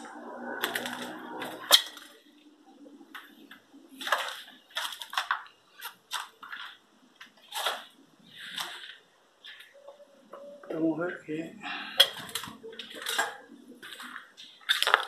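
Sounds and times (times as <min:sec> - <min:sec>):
footsteps crunching on gritty debris: 0:13.8 - 0:15.0.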